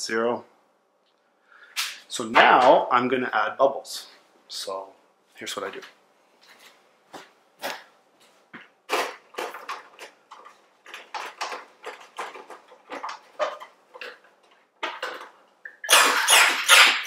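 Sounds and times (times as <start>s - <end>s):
soda maker buzzing gas injection: 15.8s - 17.0s.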